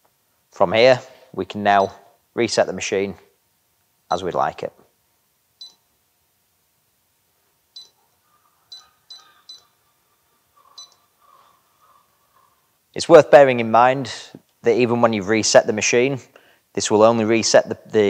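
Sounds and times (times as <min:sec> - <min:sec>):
high key-press beeps: 0:05.6 - 0:05.8, 0:07.8 - 0:08.0, 0:08.7 - 0:09.7.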